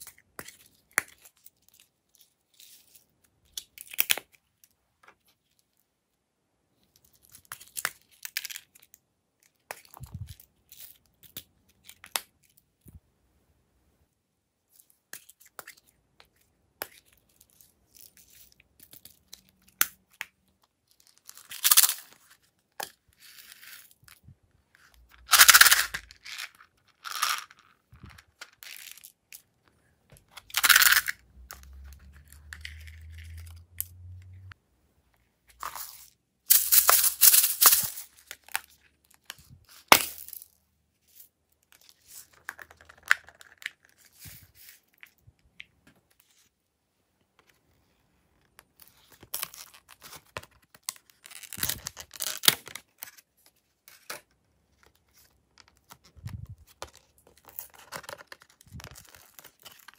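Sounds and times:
plastic beads tipped out: 25.2 - 29.0.

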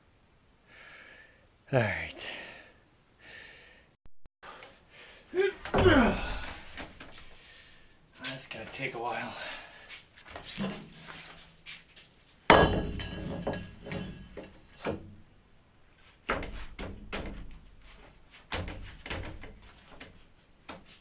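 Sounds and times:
steel pipe clanking: 12.5 - 14.9
pipe knocking and scraping on wood: 12.5 - 15.1.

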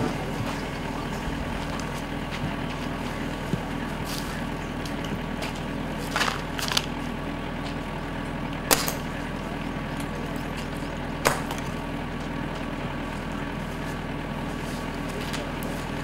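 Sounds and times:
low hum: 0.0 - 16.0
dart gun pops: 8.7 - 9.0.

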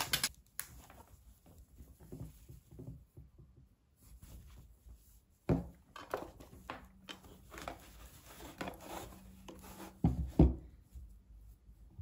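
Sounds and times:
fabric rustling and rubbing: 3.9 - 5.5, 6.3 - 10.1, 10.7 - 12.0.

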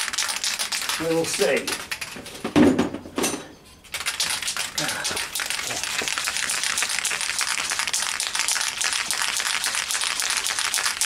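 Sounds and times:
spray can rattling clicks: 3.9 - 11.0
spray paint hiss: 4.1 - 11.0.

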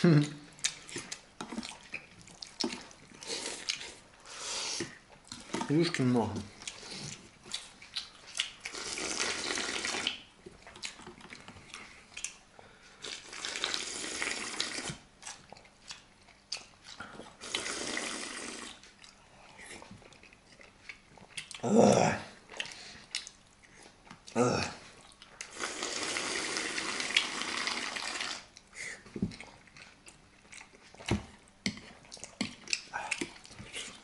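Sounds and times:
slurping noodles: 2.7 - 4.9, 8.7 - 10.2, 13.0 - 15.0, 17.3 - 18.8, 25.4 - 28.5.

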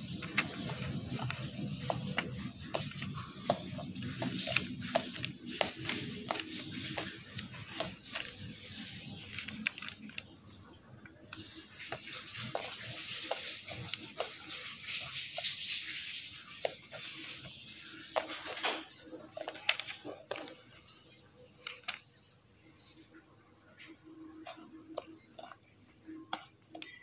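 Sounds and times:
fork and knife scraping eggplant skin: 24.4 - 25.7, 26.3 - 27.0.

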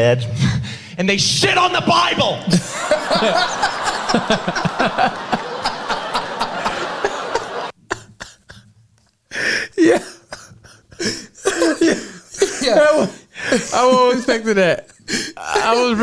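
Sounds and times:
audience laughing: 2.5 - 7.8
men laughing and chuckling: 2.5 - 8.7.

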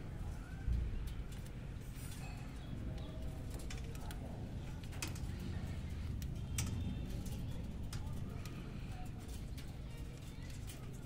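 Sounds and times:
low steady rumble: 0.0 - 10.9.

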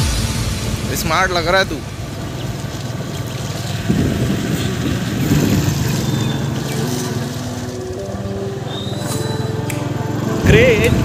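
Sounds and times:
wind on microphone: 0.0 - 6.9
motorbike engine running: 1.1 - 11.0.

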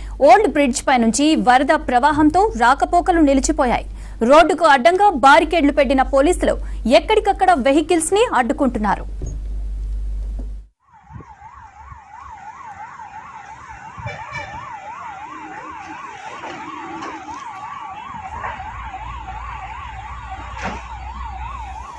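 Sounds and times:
electronic siren warbling: 10.8 - 21.9.

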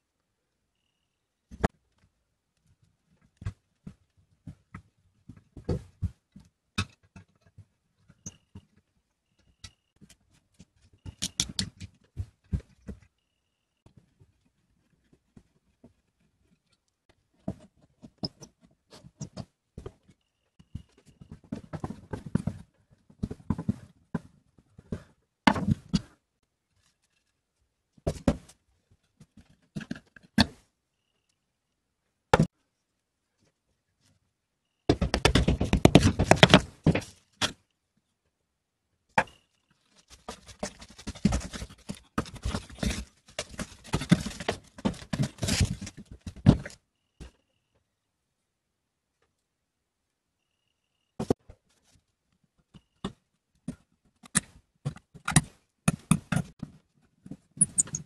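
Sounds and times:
clicks and knocks of metal and wood: 1.5 - 30.7, 34.9 - 37.7, 39.1 - 47.4, 52.6 - 58.0.

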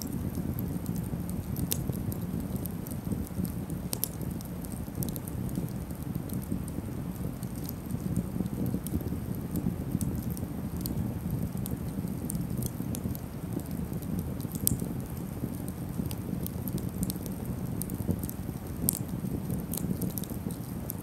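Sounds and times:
campfire crackling and popping: 0.0 - 21.0
low fire rumble: 0.0 - 21.0
wood snapping in fire: 0.0 - 21.0.

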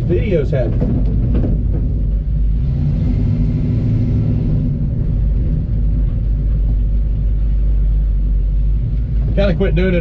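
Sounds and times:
engine running heard from cab: 0.0 - 10.0.

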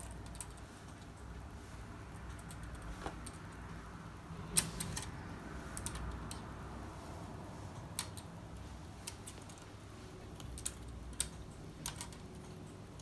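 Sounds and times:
low room hum: 0.0 - 13.0.

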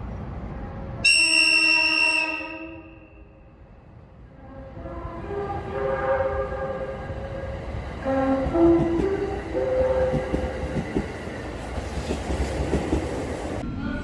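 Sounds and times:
train air horn: 1.0 - 3.4, 4.4 - 7.0, 8.0 - 10.2
train electronic music horn: 1.0 - 3.4, 4.3 - 10.5
train wheels clicking over rail joints: 8.7 - 13.6.

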